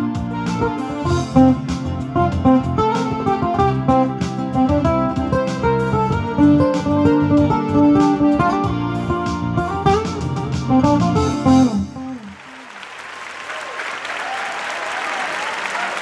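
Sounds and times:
guitar instrumental: 0.0s - 12.6s
audience applause: 12.2s - 16.0s.

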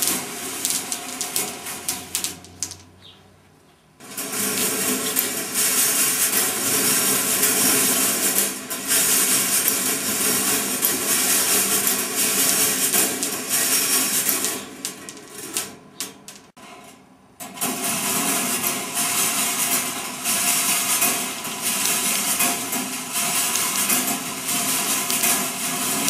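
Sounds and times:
marbles clicking together: 0.0s - 2.9s, 9.1s - 15.3s, 20.4s - 26.0s
marbles rolling on metal rails: 0.0s - 2.9s, 4.0s - 16.5s, 17.6s - 26.0s.

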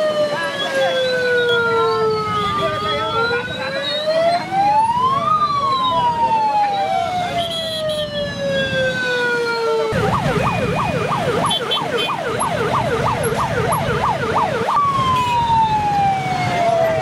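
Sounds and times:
crowd: 0.0s - 8.2s
emergency siren wail and yelp: 0.0s - 17.0s
motorcycle traffic rumble: 0.0s - 17.0s.

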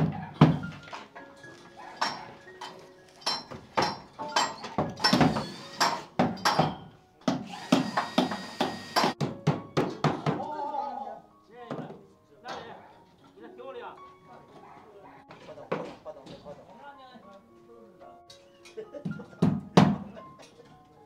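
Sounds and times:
hammer striking steel pipes: 2.0s - 10.4s.

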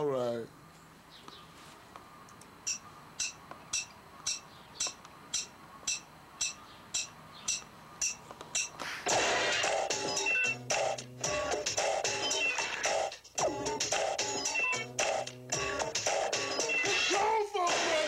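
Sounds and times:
sharp high percussion tick: 2.6s - 8.8s
loud music: 9.1s - 18.0s.

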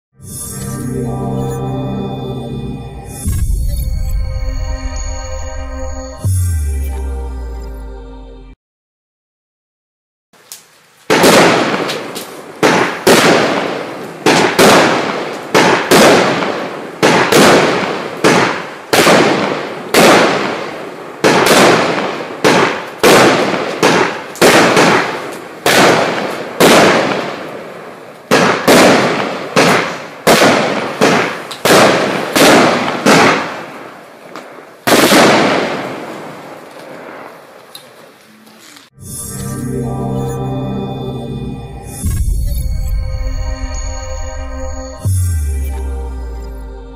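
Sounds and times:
firework bangs: 11.1s - 37.6s.

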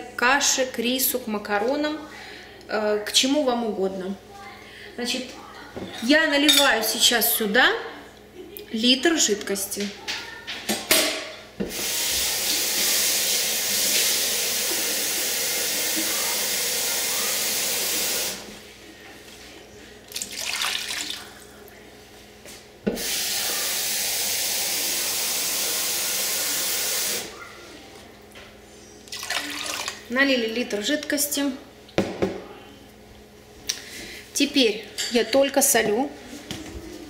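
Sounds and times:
tap water filling container: 11.6s - 18.4s, 20.1s - 21.2s, 29.1s - 30.1s.

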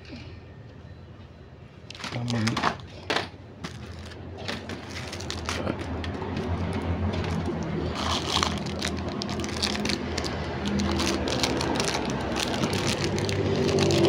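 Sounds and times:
vehicle engine hum: 3.1s - 14.0s
plastic bag crinkling: 3.6s - 14.0s.

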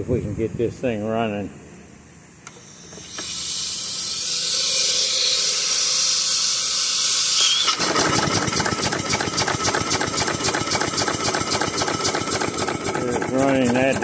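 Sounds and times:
loud steam hiss: 2.6s - 8.4s
steam engine running fast beat: 7.9s - 14.0s.

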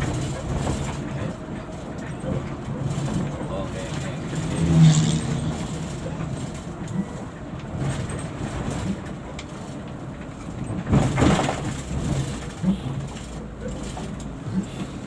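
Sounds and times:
bus engine running: 0.0s - 15.0s
road noise: 0.0s - 15.0s.

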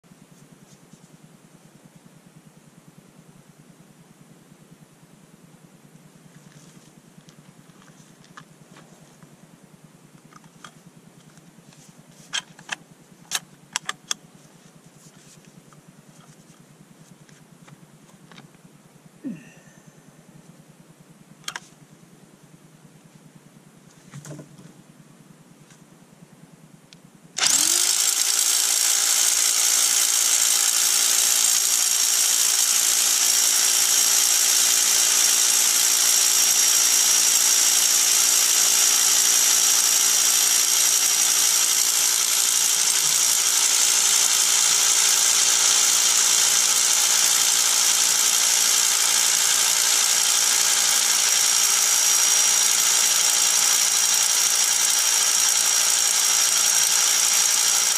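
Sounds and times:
electric drill boring into stone: 27.4s - 57.9s.

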